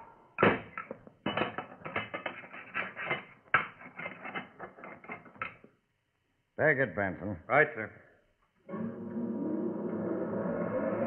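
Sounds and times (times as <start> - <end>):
metal clanks and rattles: 0.4 - 5.6.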